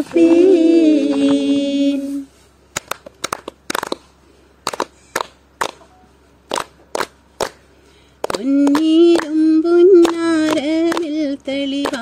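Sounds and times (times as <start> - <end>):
rhythmic handclaps: 2.7 - 5.8, 6.4 - 12.0.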